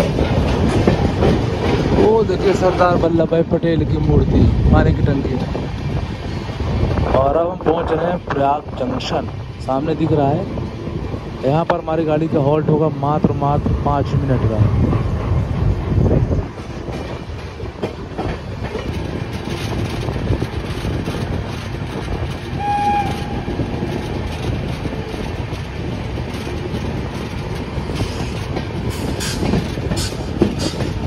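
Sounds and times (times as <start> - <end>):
train wheels rumbling: 0.0 - 31.0
wheels clattering over rail joints: 0.0 - 31.0
train horn: 22.6 - 23.6.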